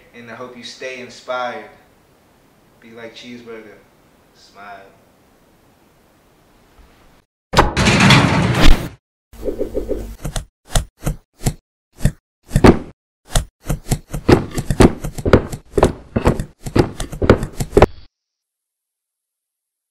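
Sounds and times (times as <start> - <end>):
cartoon box whacks and thuds: 7.6 - 9.0, 10.2 - 17.9.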